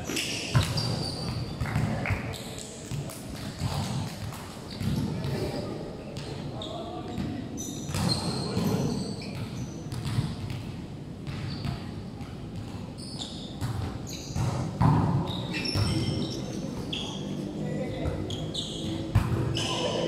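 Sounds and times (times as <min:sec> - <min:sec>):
shoe squeaks: 0:00.0 - 0:01.6, 0:07.6 - 0:09.8, 0:11.4 - 0:11.9, 0:13.0 - 0:17.4, 0:18.2 - 0:20.0
faint players' voices: 0:00.0 - 0:20.0.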